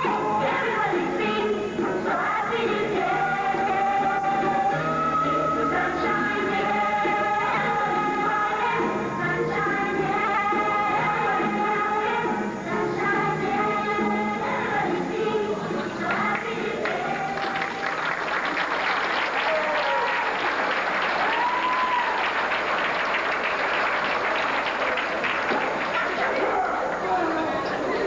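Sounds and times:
singing with music: 0:00.0 - 0:22.4
audience cheering: 0:16.8 - 0:27.2
audience applause: 0:16.8 - 0:27.5.

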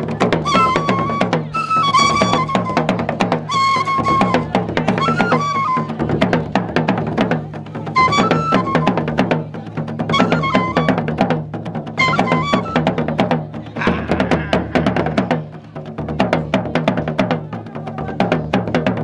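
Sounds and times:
hand drums playing: 0:00.0 - 0:19.0.

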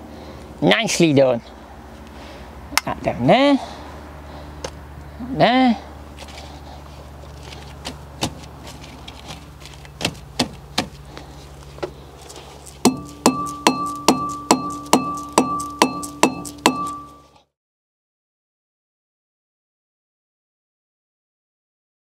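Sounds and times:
hammer striking ringing metal disc: 0:12.8 - 0:17.4.

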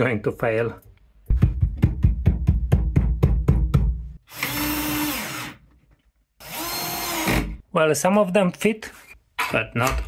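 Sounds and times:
power drill whirring: 0:04.3 - 0:05.6, 0:06.4 - 0:07.6.

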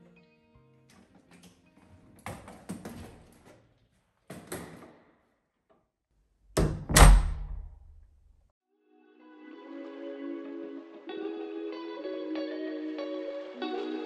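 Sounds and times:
wooden door slamming shut: 0:06.6 - 0:08.0.

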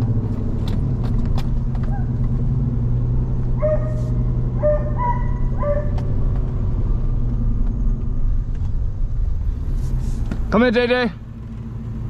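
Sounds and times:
truck engine and tyres rumbling: 0:00.0 - 0:12.0
dog barking: 0:03.6 - 0:06.0.

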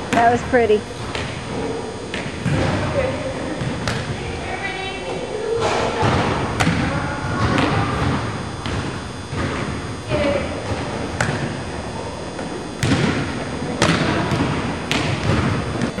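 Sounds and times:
volleyball thuds: 0:00.0 - 0:04.4, 0:05.0 - 0:11.7, 0:12.3 - 0:16.0.

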